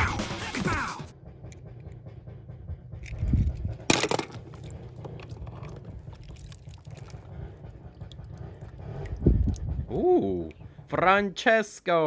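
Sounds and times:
low steady rumble: 0:01.1 - 0:12.0
water splashing in a tub: 0:05.2 - 0:09.7.

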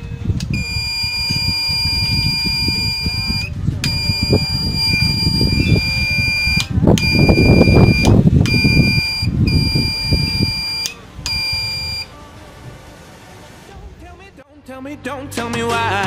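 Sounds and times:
alarm buzzer beeping: 0:00.5 - 0:12.1.

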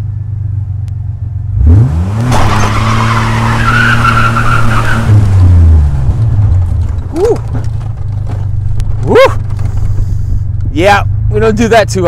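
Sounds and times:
pickup engine idling and revving: 0:00.0 - 0:12.0
tyres spinning and squealing: 0:02.2 - 0:10.3.

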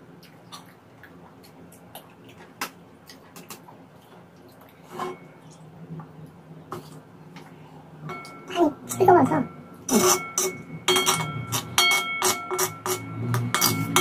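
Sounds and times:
person drinking: 0:09.9 - 0:10.3.

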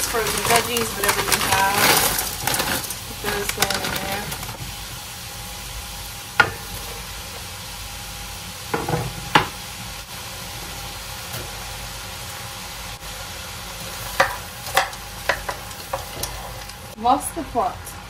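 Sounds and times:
vegetable cubes clattering into pot: 0:00.0 - 0:04.6
vegetables sizzling in a pot: 0:00.0 - 0:18.0.

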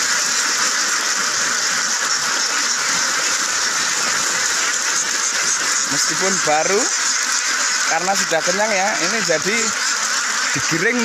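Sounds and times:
flock of ducks quacking: 0:00.0 - 0:11.0.

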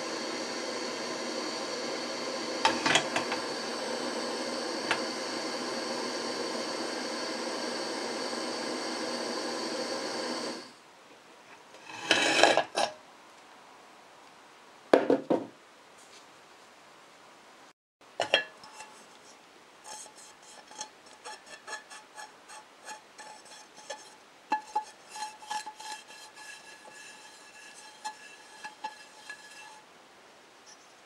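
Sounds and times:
hand tapping and rubbing pan: 0:19.9 - 0:29.8.

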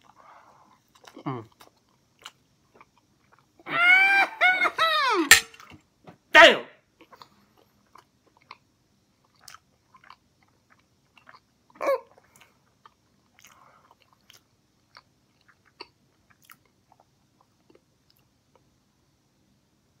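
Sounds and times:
person chewing with mouth closed: 0:00.0 - 0:03.6, 0:07.0 - 0:18.7
short voiced sound: 0:06.4 - 0:06.7.

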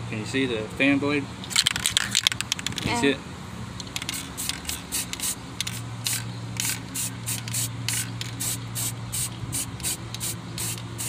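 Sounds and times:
spray paint can hissing: 0:04.0 - 0:11.0.

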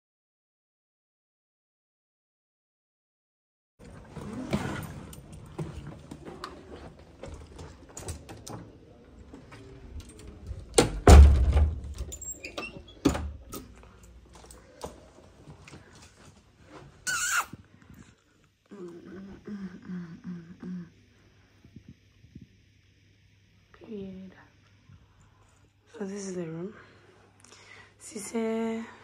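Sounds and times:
heavy door thump: 0:10.7 - 0:12.0.

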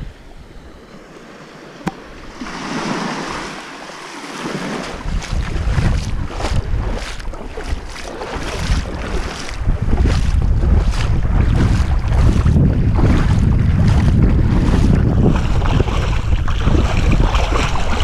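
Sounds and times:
small waves lapping on shore: 0:00.0 - 0:18.0
wind buffeting microphone: 0:04.2 - 0:18.0.

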